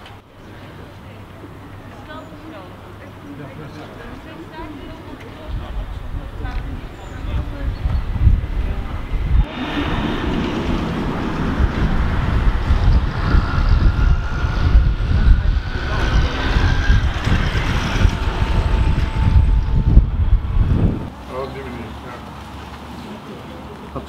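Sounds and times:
crowd murmur: 0.0s - 21.0s
wind buffeting microphone: 4.1s - 21.2s.

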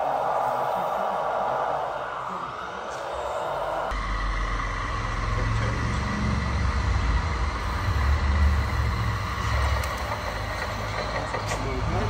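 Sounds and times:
thin steady whine: 0.0s - 12.0s
low engine-like rumble: 3.5s - 12.0s.

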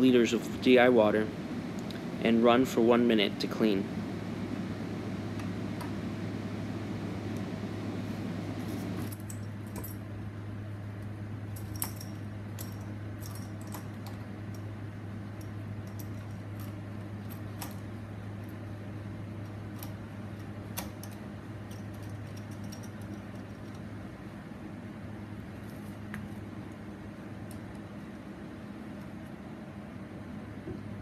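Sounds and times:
low machine hum: 0.0s - 31.0s
light metallic clicks and clinks: 11.6s - 14.6s, 20.8s - 23.9s.

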